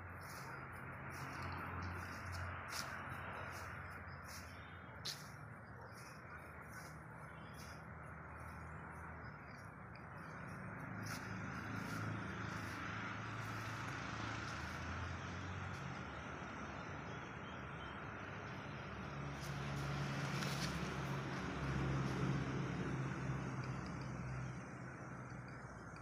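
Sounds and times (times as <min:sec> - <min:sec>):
motor vehicle engine hum: 0:00.0 - 0:26.0
outdoor background noise: 0:00.0 - 0:26.0.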